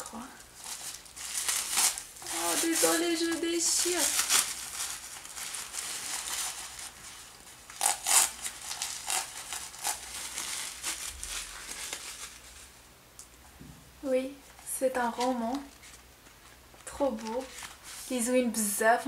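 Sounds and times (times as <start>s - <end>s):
tissue paper tearing and rustling: 0.1s - 12.8s, 17.0s - 18.4s.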